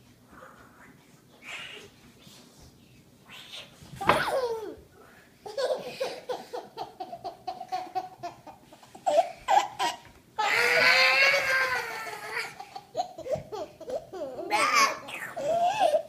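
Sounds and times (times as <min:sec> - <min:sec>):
young children laughing: 0:04.0 - 0:04.8, 0:05.4 - 0:16.0
children shrieking: 0:10.4 - 0:12.6.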